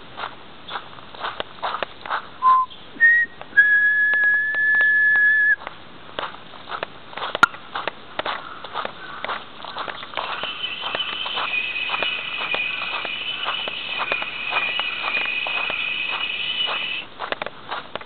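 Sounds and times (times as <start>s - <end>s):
footsteps on paved path: 0.0s - 18.0s
whistled notes: 2.4s - 5.6s, 10.2s - 17.1s.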